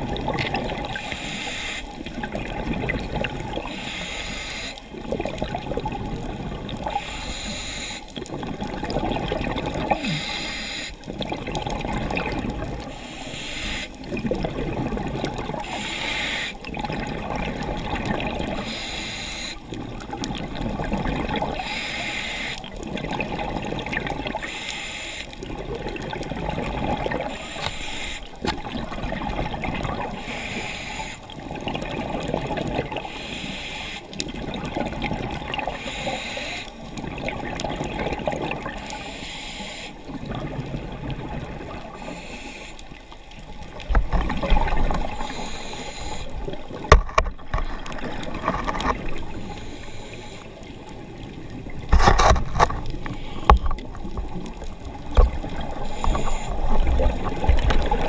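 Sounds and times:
gurgle of exhaled bubbles: 0.0s - 1.2s, 1.9s - 3.8s, 4.8s - 7.4s, 8.1s - 13.0s, 13.9s - 15.8s, 16.5s - 18.8s, 19.6s - 21.8s, 22.6s - 24.6s, 25.4s - 30.7s, 31.3s - 33.2s, 34.2s - 39.0s, 40.0s - 42.2s, 42.9s - 58.0s
regulator inhale hiss: 1.0s - 2.0s, 3.6s - 4.9s, 6.9s - 8.1s, 10.0s - 11.0s, 12.9s - 14.0s, 15.6s - 16.6s, 18.6s - 19.6s, 21.6s - 22.7s, 24.4s - 25.4s, 27.3s - 28.4s, 30.2s - 31.4s, 33.0s - 34.2s, 35.7s - 36.9s, 38.8s - 40.0s, 41.9s - 43.0s, 45.1s - 46.6s, 49.3s - 50.6s, 53.1s - 53.7s, 55.8s - 56.8s.

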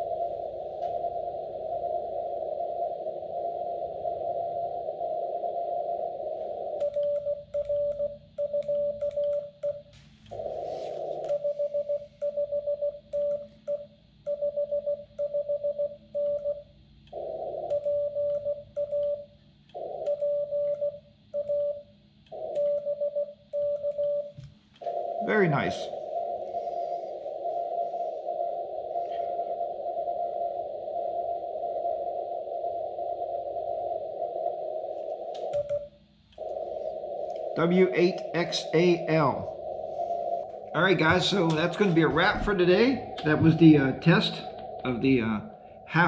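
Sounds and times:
radio band noise hiss: 0.0s - 6.8s, 9.9s - 12.5s, 24.8s - 46.0s
morse code beeps: 5.3s - 46.0s.

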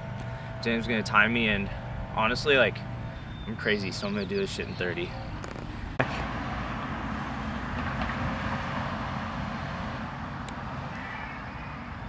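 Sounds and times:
road traffic passing: 0.0s - 12.0s.

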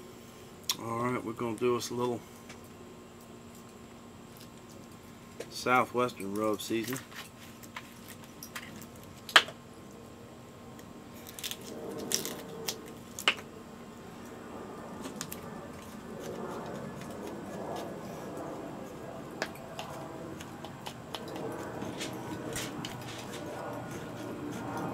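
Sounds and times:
rustling and scraping: 6.7s - 9.2s, 15.0s - 24.9s.

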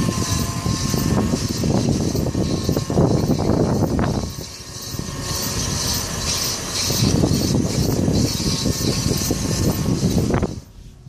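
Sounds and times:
road and tyre noise: 0.0s - 11.0s
scraping rattle from wheel: 0.0s - 11.0s.

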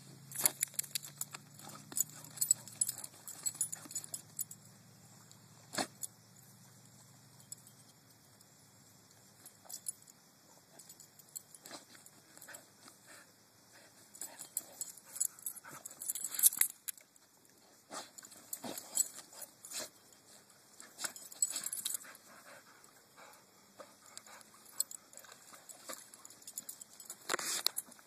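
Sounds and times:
paws scratching in dirt: 0.4s - 4.2s.

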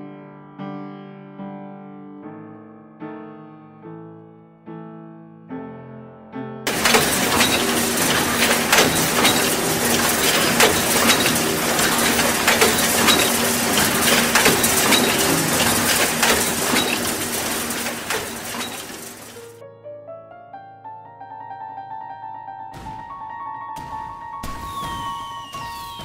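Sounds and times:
sewing machines clattering: 6.7s - 19.6s.

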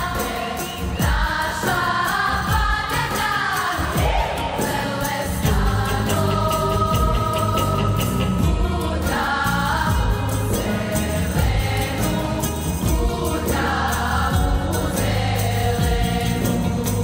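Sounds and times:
choir singing in unison: 0.0s - 17.0s.

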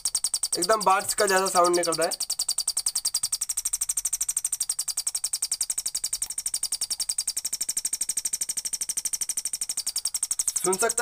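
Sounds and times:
high-pitched electronic chirps: 0.0s - 3.9s, 4.5s - 7.5s, 9.7s - 11.0s.

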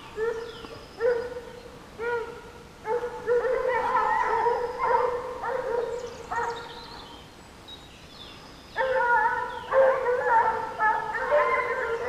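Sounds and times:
hounds baying: 0.2s - 6.7s, 8.8s - 12.0s.

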